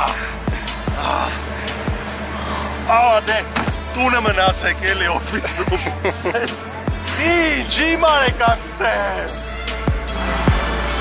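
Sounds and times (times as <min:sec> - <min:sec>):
deep bass: 0:00.0 - 0:11.0
rapping over a beat: 0:04.0 - 0:09.4.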